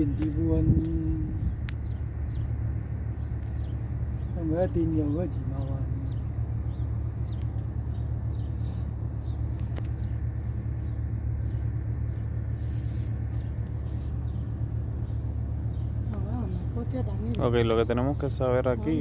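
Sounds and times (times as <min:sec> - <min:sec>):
low rumble: 0:00.0 - 0:19.0
brief hiss: 0:12.6 - 0:13.2.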